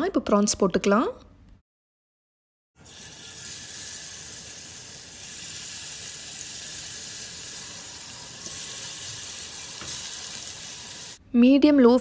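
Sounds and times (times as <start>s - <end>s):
prawns sizzling in hot oil: 2.8s - 11.2s.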